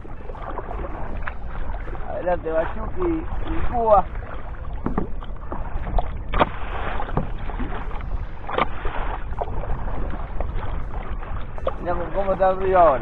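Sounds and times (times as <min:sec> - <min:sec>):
water slapping against kayak hull: 0:00.0 - 0:13.0
wind rumble on microphone: 0:00.0 - 0:13.0.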